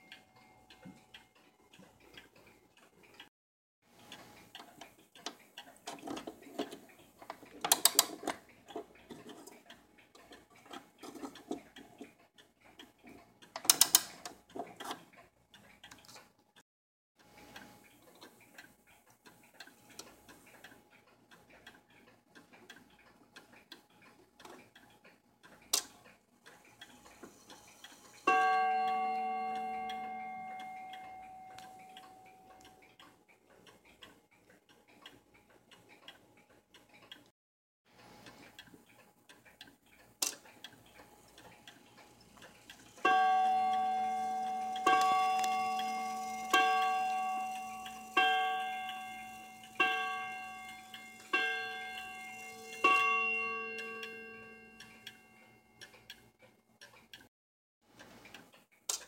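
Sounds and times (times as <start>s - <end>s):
wall clock ticking: 0.0s - 3.3s, 3.9s - 16.6s, 17.2s - 37.3s, 37.9s - 59.0s
clock gong strike: 43.1s - 54.8s.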